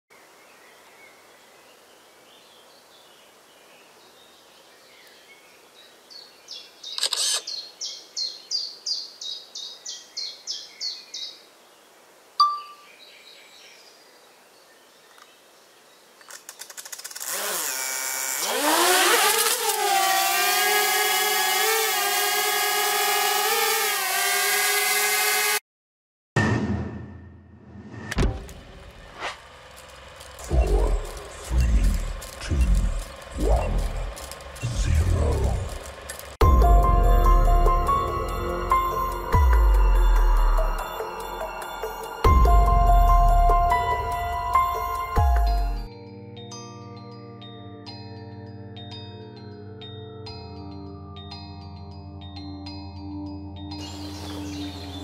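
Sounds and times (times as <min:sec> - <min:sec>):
drone motors buzzing: 0:16.9 - 0:25.6, 0:28.1 - 0:45.9
rapid high chirps: 0:29.8 - 0:45.9.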